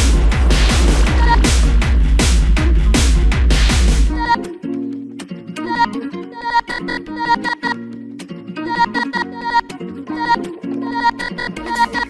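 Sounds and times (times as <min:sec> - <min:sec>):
deep bass: 0:00.0 - 0:04.2
synth riff: 0:00.0 - 0:04.4.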